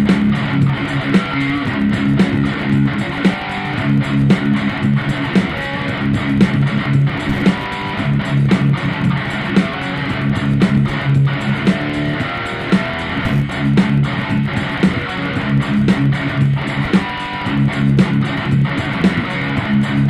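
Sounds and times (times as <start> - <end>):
bass: 0.0 - 20.0
strummed electric guitar: 0.0 - 20.0
steady beat: 6.4 - 19.6.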